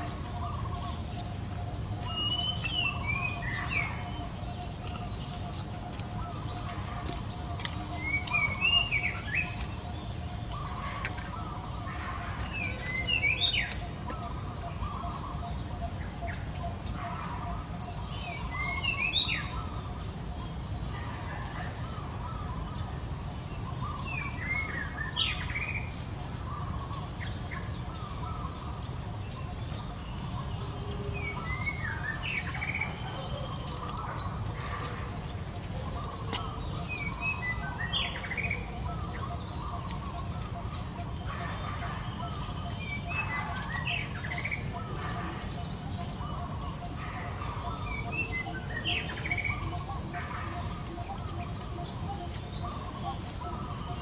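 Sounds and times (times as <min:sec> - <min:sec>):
steady low background noise: 0:00.0 - 0:54.0.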